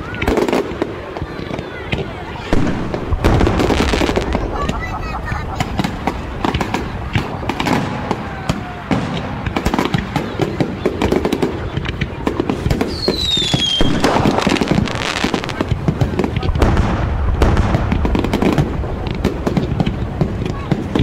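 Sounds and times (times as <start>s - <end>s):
fireworks crackling and popping: 0.0s - 21.0s
low rumble of booms: 2.5s - 8.5s
falling whistle: 3.4s - 8.6s.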